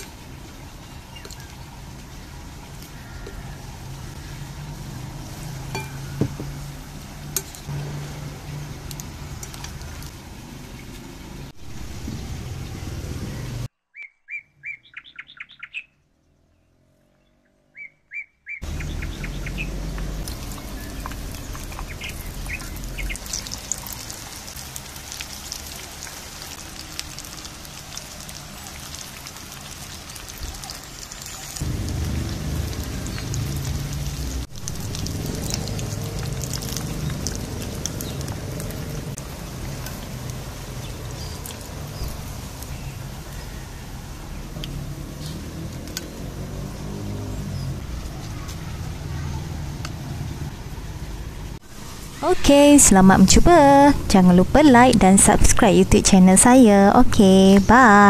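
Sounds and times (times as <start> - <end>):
fritters sizzling in hot oil: 0.0 - 13.6, 18.6 - 49.0
birds chirping: 10.6 - 24.3, 30.0 - 58.0.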